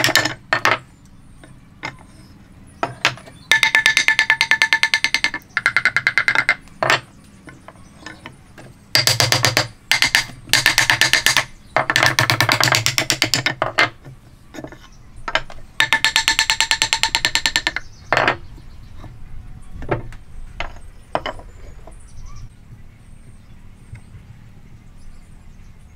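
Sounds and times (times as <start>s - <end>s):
wooden mallet tapping wood: 0.0s - 0.8s, 2.8s - 18.4s.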